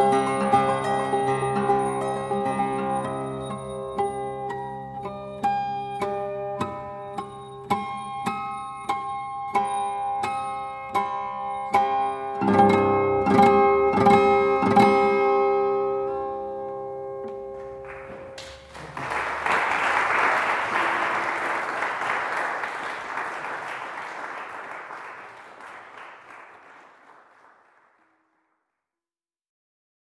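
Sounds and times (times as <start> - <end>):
acoustic guitar strumming chords: 0.0 - 18.4
audience applause: 17.8 - 28.2.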